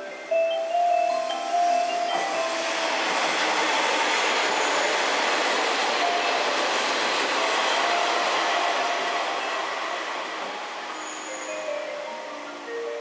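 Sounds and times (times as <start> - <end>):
diesel railcar passing: 0.0 - 13.0.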